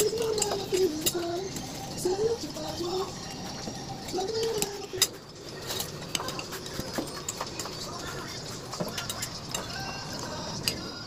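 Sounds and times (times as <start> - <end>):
cutlery clinking on plates: 0.0 - 1.4, 2.6 - 11.0.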